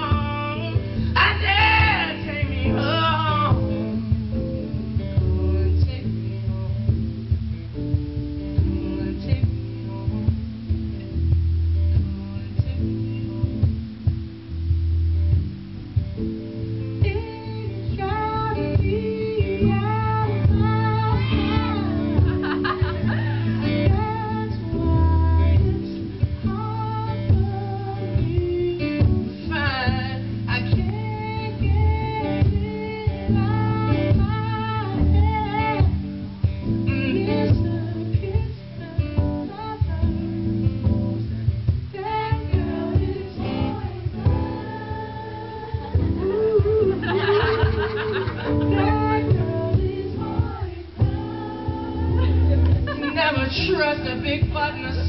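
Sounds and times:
man singing: 0:00.0 - 0:06.9
acoustic guitar: 0:00.0 - 0:55.0.

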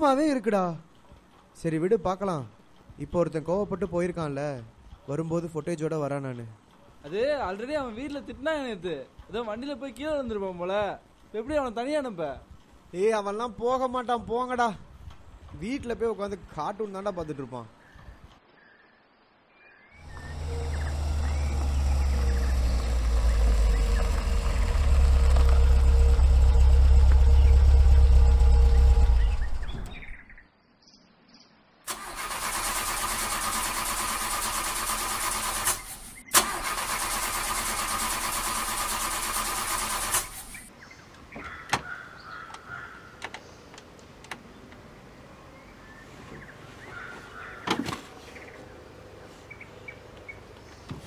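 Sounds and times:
car engine driving: 0:20.0 - 0:30.2.

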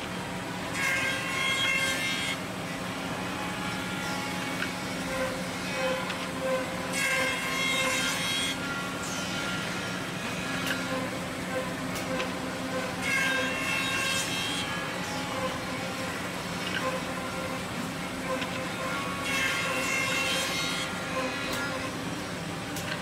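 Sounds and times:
high machine whine: 0:00.0 - 0:23.0
woodworking machine motor hum: 0:00.0 - 0:23.0.

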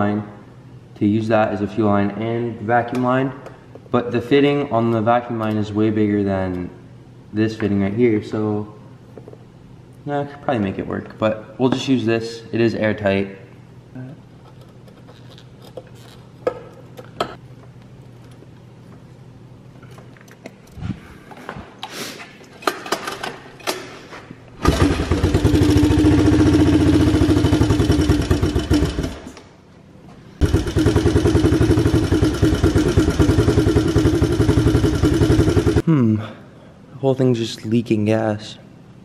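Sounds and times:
quad bike engine starting and running: 0:24.6 - 0:29.4, 0:30.4 - 0:35.8.

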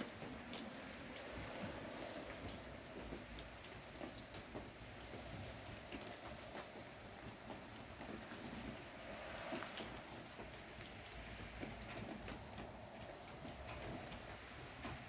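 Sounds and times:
wet snow pattering: 0:00.0 - 0:15.0.

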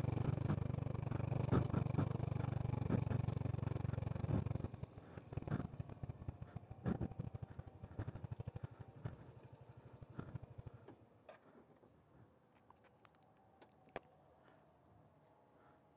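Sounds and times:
scooter engine idling: 0:00.0 - 0:11.1
faint engine ticks: 0:00.0 - 0:11.9.

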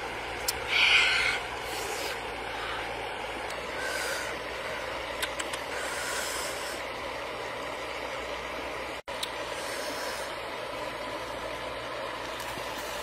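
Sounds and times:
faint clicks: 0:05.2 - 0:05.7.

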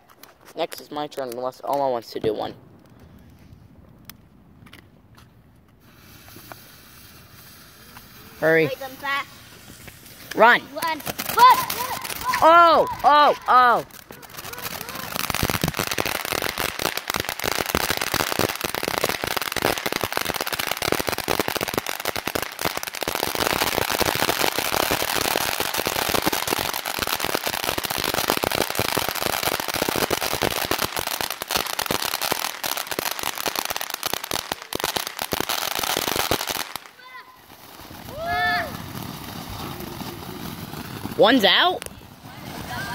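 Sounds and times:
fireworks crackling and hissing: 0:00.0 - 0:42.9.

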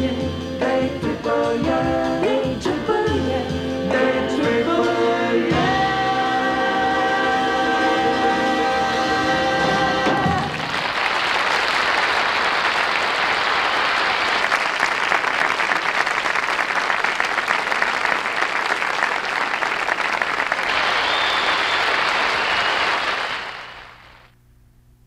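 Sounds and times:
audience applauding: 0:10.1 - 0:24.3.

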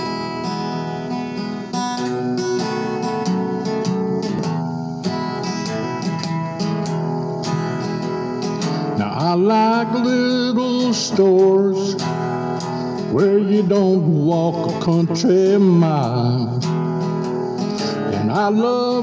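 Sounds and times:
acoustic guitar strumming: 0:00.0 - 0:19.0.

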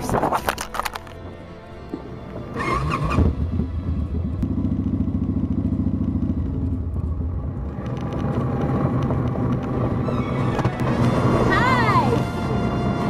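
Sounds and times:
motorcycle engine running: 0:02.6 - 0:11.3.

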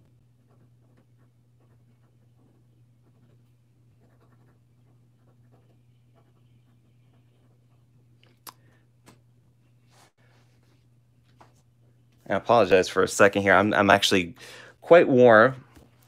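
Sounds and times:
steady low hum: 0:00.0 - 0:16.0
fountain pen scratching on paper: 0:00.2 - 0:08.0.

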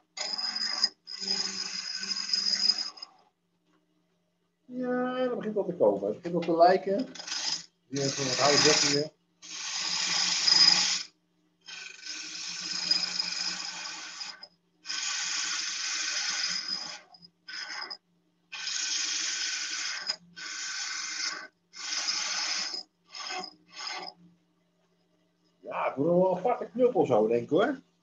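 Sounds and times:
gouge cutting wood on lathe: 0:00.2 - 0:03.1, 0:07.1 - 0:11.1, 0:11.7 - 0:18.0, 0:18.6 - 0:24.2.

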